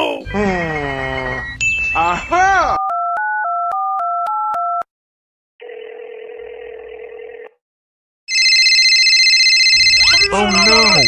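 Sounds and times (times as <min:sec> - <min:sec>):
electronic phone ringtone: 0:05.6 - 0:07.5, 0:08.3 - 0:11.0
phone ringback tone: 0:05.6 - 0:07.5, 0:08.3 - 0:11.0
keypad dialling beeps: 0:09.2 - 0:11.0.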